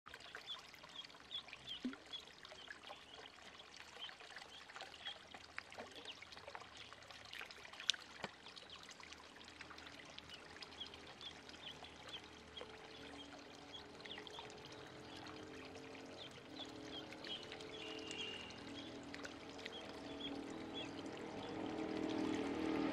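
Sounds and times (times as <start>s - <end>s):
ducklings splashing in water: 0.1s - 22.9s
ducklings peeping: 16.2s - 19.0s, 19.6s - 21.5s.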